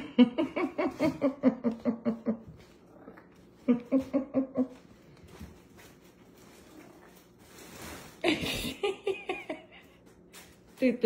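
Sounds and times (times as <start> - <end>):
person chuckling: 0.0 - 2.8, 3.6 - 5.0, 8.2 - 10.0.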